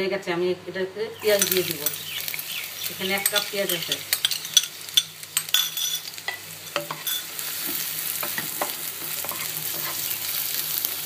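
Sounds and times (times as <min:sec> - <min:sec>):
onions sizzling in oil: 0:01.2 - 0:11.0.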